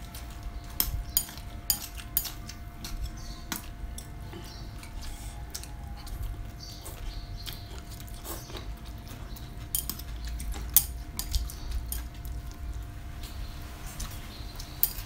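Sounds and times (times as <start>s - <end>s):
chewing and crunching: 0.0s - 15.0s
chopsticks clicking on bowls: 0.1s - 6.2s, 7.4s - 12.3s, 14.0s - 15.0s.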